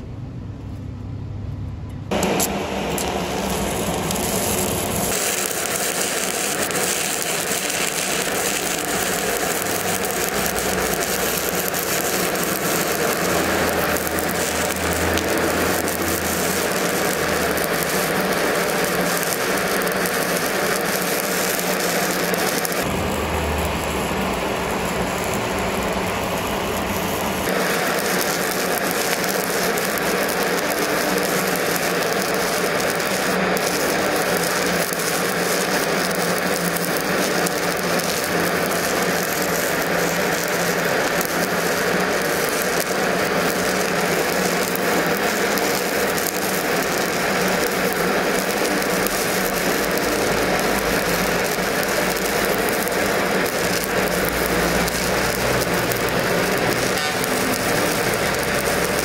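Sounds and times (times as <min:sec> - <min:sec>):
low hum: 0:00.0 - 0:21.8, 0:22.4 - 0:27.8
arc welding crackling hiss: 0:02.1 - 0:59.0.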